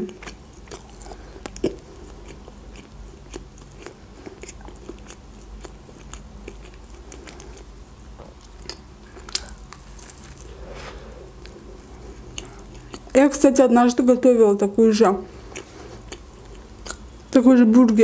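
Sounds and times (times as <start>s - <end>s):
crisp bite into sandwich: 9.3s - 11.0s.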